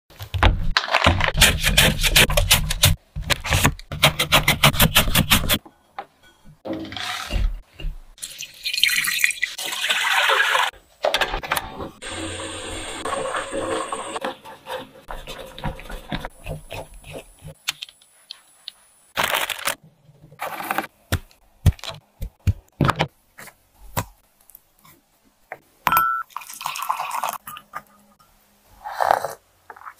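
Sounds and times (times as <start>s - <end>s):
water pouring into glass mug: 8.2s - 10.7s, 26.2s - 27.6s.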